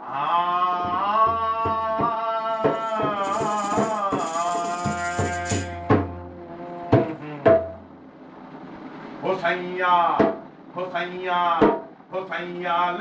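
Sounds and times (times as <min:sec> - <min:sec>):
barrel drum beaten by hand: 0:00.8 - 0:07.9
rattling jingle: 0:02.6 - 0:05.9.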